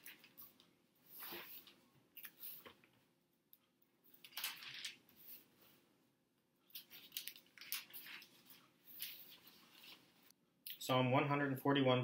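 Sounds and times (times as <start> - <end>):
thin pages turning: 4.2 - 5.4, 6.7 - 10.3.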